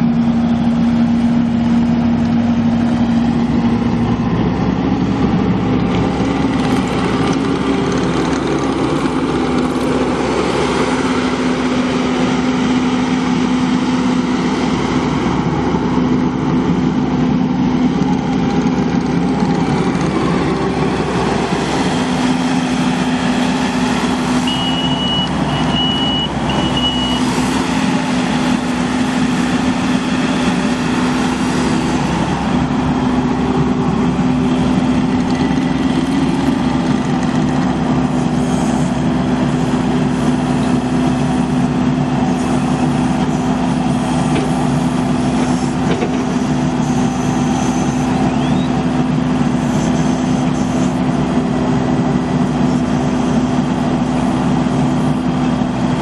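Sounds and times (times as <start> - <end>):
diesel engine running: 0.0 - 56.0
short high beeps: 24.4 - 27.2.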